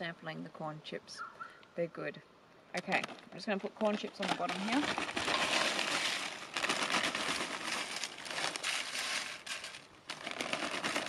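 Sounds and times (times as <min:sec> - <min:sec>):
plastic bag crinkling: 0:03.8 - 0:11.0
corn chips rustling: 0:03.9 - 0:11.0.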